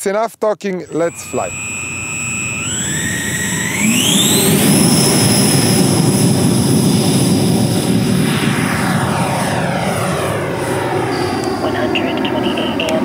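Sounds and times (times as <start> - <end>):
electric ducted fan whine: 0.8 - 13.0.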